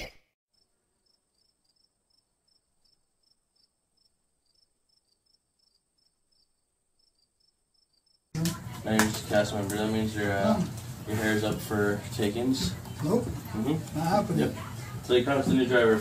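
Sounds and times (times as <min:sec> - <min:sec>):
faint cricket chirps: 0:00.5 - 0:08.3.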